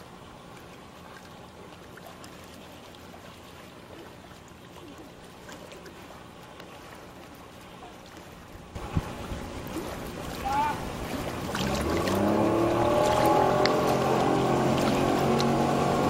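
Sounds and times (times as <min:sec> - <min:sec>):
distant motorboat engine drone: 0:00.0 - 0:16.0
small waves lapping: 0:00.0 - 0:16.0.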